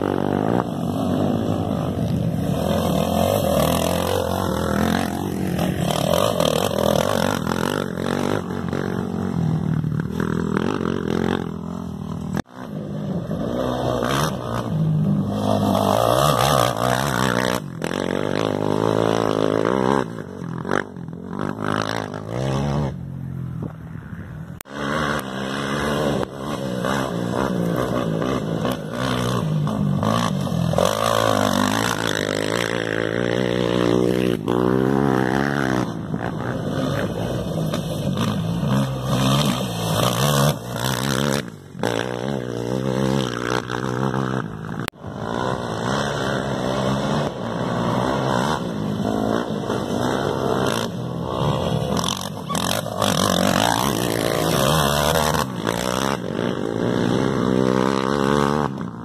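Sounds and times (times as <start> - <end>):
race engines revving: 24.6 - 59.0.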